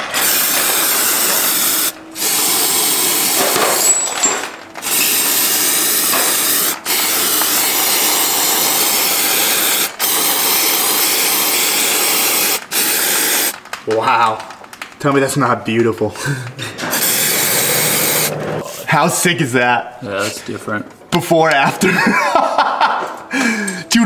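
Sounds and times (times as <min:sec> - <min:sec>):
aerosol can spraying: 0:00.0 - 0:03.8, 0:04.8 - 0:13.6, 0:16.8 - 0:18.3.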